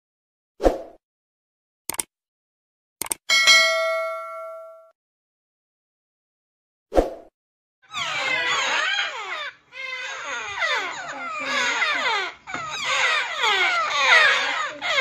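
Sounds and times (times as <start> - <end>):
sharp click: 1.9 - 2.1, 3.0 - 3.2
parrot chicks squeaky calls: 7.9 - 15.0.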